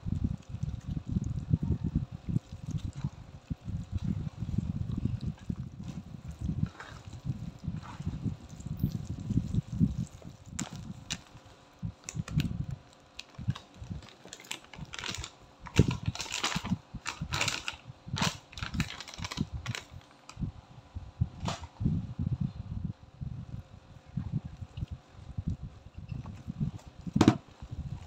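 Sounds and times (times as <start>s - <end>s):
gloved hand squelching wet filling: 0.0s - 17.3s
flour packet crinkling: 9.4s - 20.3s.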